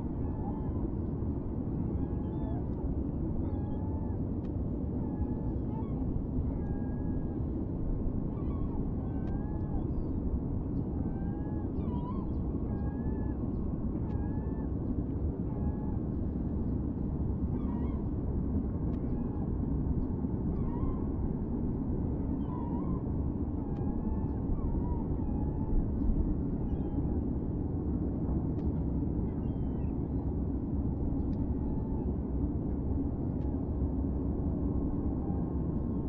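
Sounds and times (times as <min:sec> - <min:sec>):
low rumble background noise: 0:00.0 - 0:36.0.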